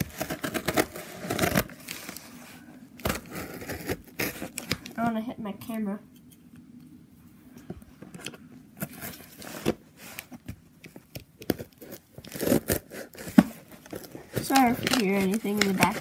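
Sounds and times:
packing tape tearing: 0.0s - 2.3s, 3.0s - 4.9s, 11.4s - 16.0s
cardboard flaps rustling: 11.5s - 16.0s.

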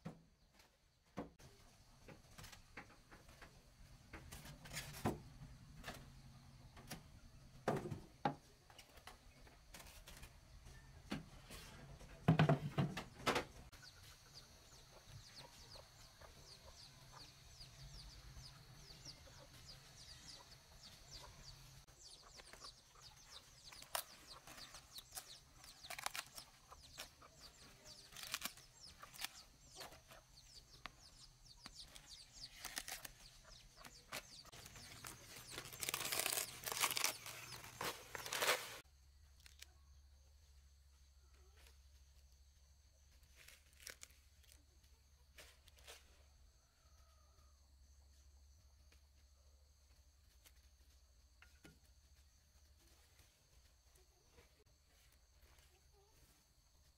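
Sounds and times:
chickens clucking: 8.5s - 35.6s
cabbage leaves snapping by hand: 23.7s - 30.0s, 31.8s - 39.7s.

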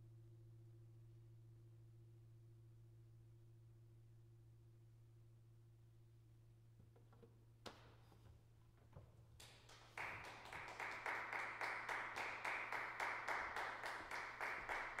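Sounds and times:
hand clapping in a reverberant hall: 9.3s - 15.0s.

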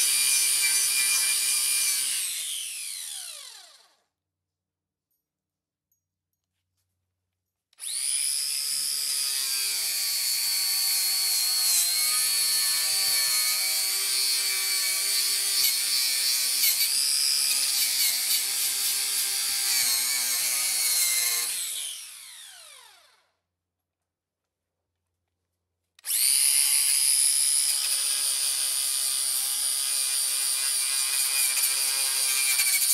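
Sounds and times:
angle grinder whining: 0.0s - 4.0s, 7.8s - 23.2s.

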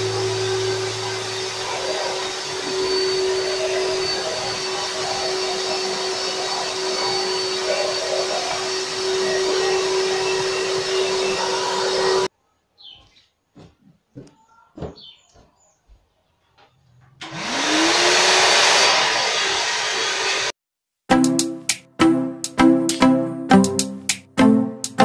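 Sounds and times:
vacuum cleaner running: 0.0s - 12.3s, 17.2s - 20.5s.

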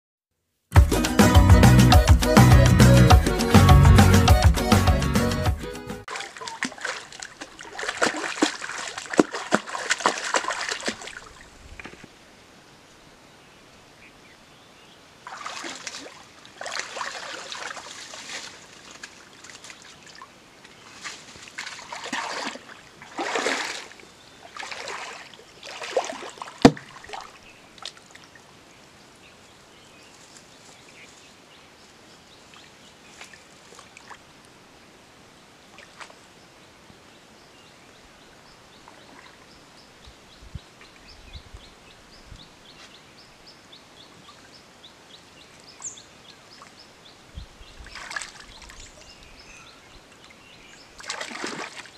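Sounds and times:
water splashing and sloshing: 6.1s - 12.2s, 15.2s - 28.6s, 32.5s - 34.4s, 35.7s - 36.3s, 38.8s - 39.5s, 47.8s - 49.3s, 50.1s - 51.9s.

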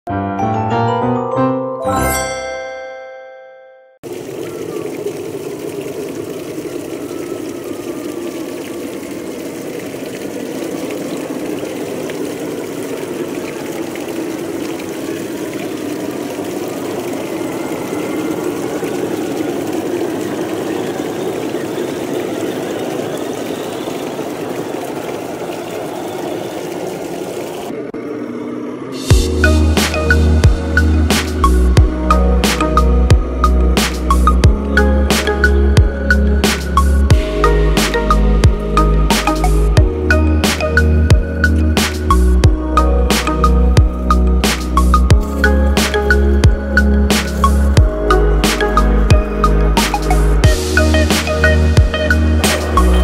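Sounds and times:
musical chime: 0.3s - 4.0s.

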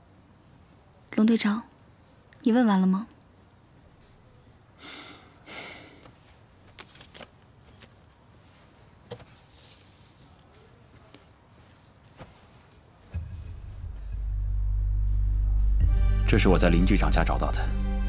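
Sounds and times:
paper and cloth rustling: 6.0s - 13.4s.

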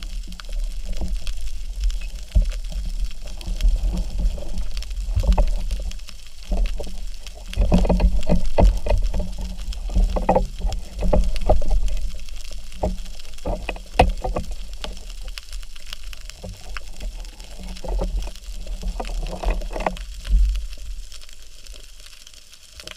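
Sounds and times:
low underwater rumble: 0.0s - 22.1s
knocks and clicks underwater: 0.0s - 22.9s.

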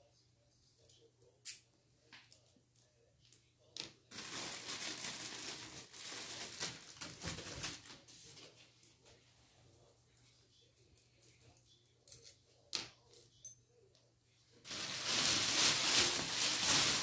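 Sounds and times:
plastic packaging crinkling: 4.1s - 8.0s, 14.7s - 17.0s.

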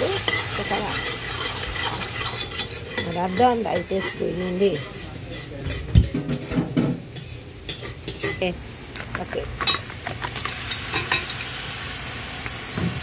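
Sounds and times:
meat sizzling: 0.0s - 4.8s, 7.4s - 13.0s
metal spoon scraping pot: 0.0s - 8.5s.

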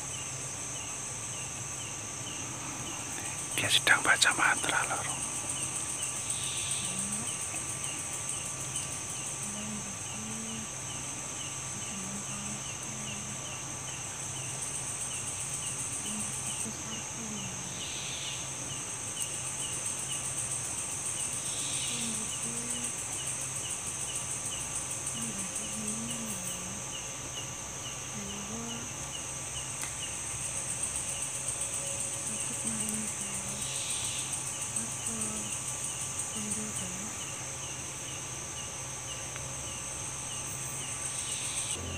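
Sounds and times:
crickets buzzing: 0.0s - 41.9s
high insect chirp: 0.0s - 41.9s
insect ticking call: 0.0s - 41.9s
low voice murmuring: 6.8s - 8.0s, 9.4s - 10.8s, 11.7s - 13.5s, 16.0s - 17.8s, 21.9s - 23.0s, 25.1s - 27.0s, 28.1s - 28.9s, 32.3s - 33.6s, 34.7s - 35.5s, 36.3s - 37.2s.

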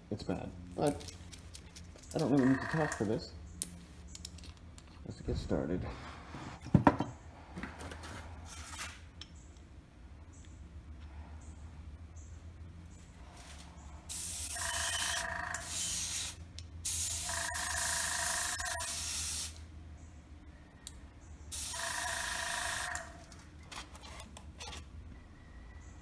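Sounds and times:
airbrush hissing: 14.1s - 17.3s.

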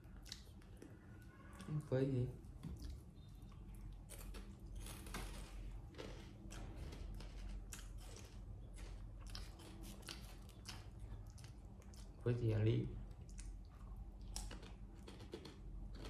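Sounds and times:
potato chips crunching: 4.0s - 12.2s.

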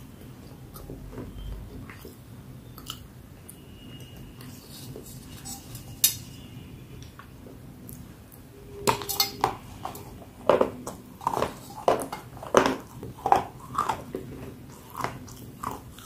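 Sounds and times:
pieces clinking in a metal bowl: 5.4s - 6.4s, 8.8s - 14.0s.

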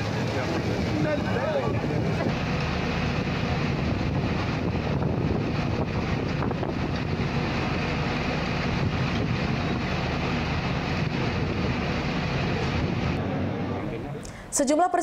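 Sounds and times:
traffic rumble: 0.0s - 15.0s
wind: 0.0s - 15.0s.

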